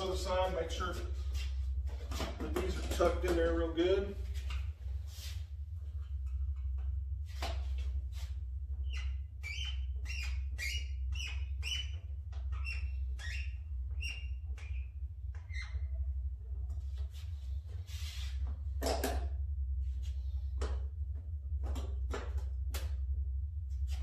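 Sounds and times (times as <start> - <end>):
steady low hum: 0.0 - 24.0
rubber and plastic squeaking: 8.8 - 16.0.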